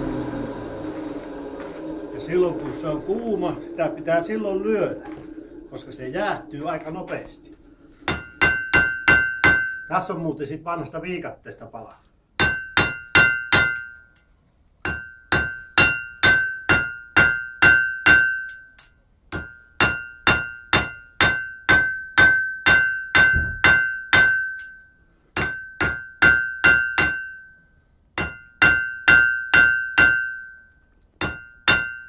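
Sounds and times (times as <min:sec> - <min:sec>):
hammer striking steel on anvil: 0:08.0 - 0:10.0, 0:12.4 - 0:14.1, 0:14.8 - 0:27.6, 0:28.2 - 0:32.0.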